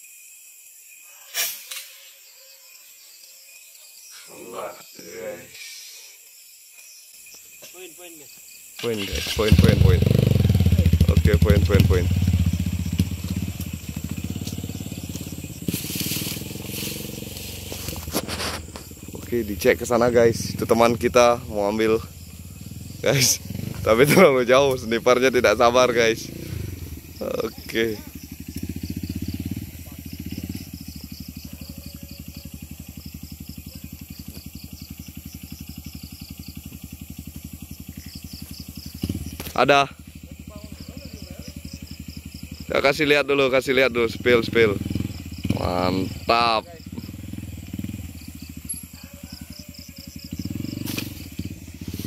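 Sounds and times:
small engine idling: 8.8 - 52.0
grass and brush rustling: 11.5 - 32.9, 47.8 - 52.0.

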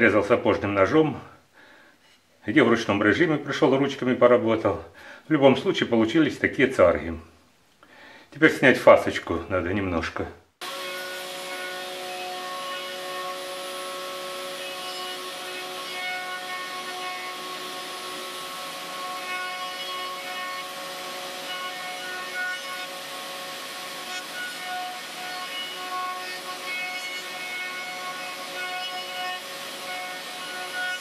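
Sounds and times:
router cutting wood: 10.6 - 31.0.

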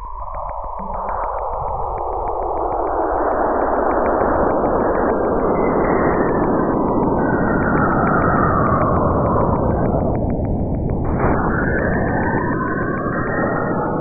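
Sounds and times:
faint regular ticks: 0.0 - 13.7.

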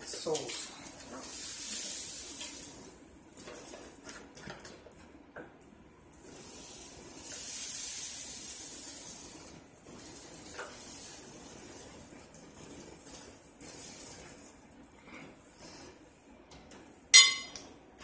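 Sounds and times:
salt pouring into a spoon: 1.2 - 2.9, 6.2 - 11.9.

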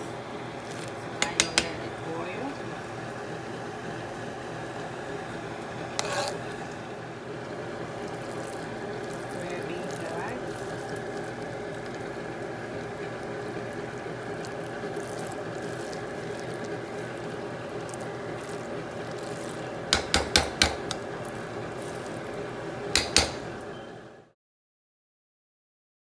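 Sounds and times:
pot simmering with bubbling hiss: 0.0 - 24.3
utensil clinking against pot: 1.2 - 2.0, 19.9 - 21.1, 22.9 - 23.5.

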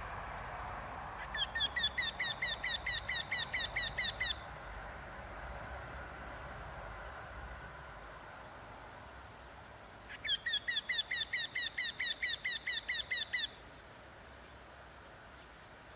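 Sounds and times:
bird singing repeated notes: 1.2 - 4.5, 10.0 - 13.6.

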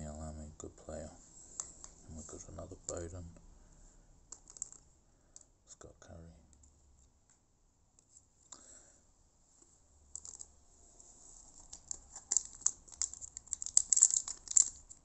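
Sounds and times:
foil wrapper crinkling and tearing: 11.4 - 15.0.

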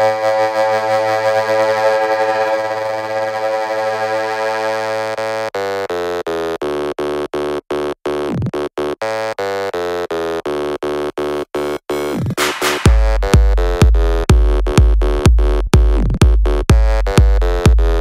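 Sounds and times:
falling synth sweep: 0.0 - 5.2
stuttering synthesizer chord: 0.0 - 5.5.

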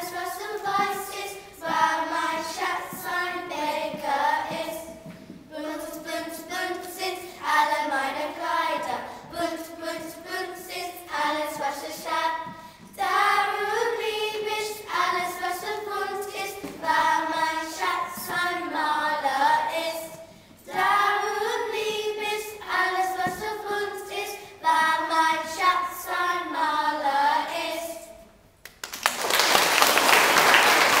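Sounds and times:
children's choir singing: 0.0 - 28.4
applause: 28.7 - 31.0.

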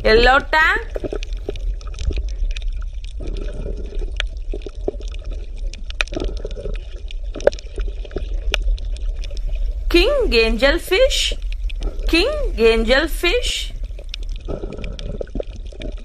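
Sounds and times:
water bubbling and gurgling: 0.0 - 16.0
small clicks and pops: 0.9 - 9.7.

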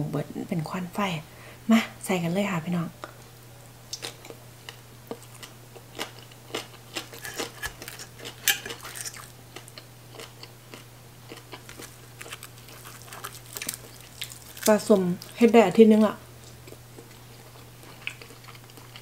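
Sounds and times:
steady low hum: 0.0 - 19.0
crunchy chewing: 3.9 - 15.5, 16.4 - 19.0.

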